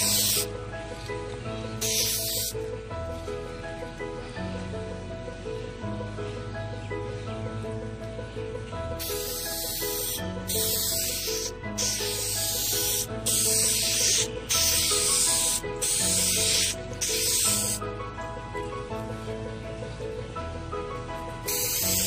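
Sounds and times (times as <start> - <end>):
spray paint can hissing: 0.0 - 0.5, 1.8 - 2.6, 9.0 - 17.8, 21.5 - 22.0
background music: 0.0 - 22.0.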